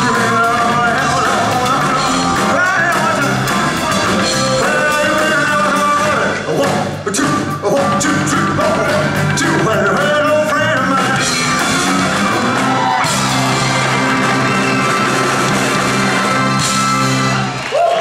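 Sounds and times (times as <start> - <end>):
man singing: 0.0 - 11.9
live rock and roll band: 0.0 - 18.0.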